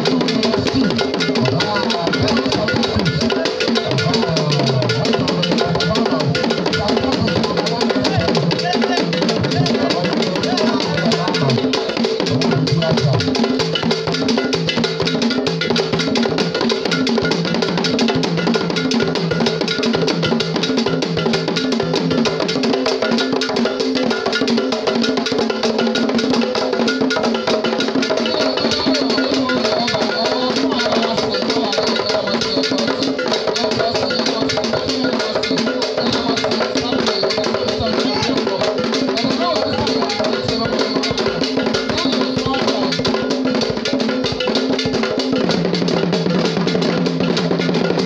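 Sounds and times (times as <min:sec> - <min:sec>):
drums playing dense rhythm: 0:00.0 - 0:48.0
wood block percussion: 0:00.0 - 0:48.0.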